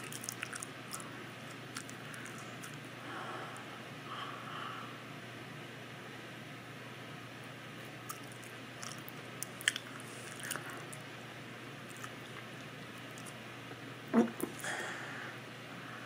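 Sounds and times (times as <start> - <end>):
chewing and swallowing mouth sounds: 0.0 - 2.9, 8.0 - 11.1, 11.8 - 13.4.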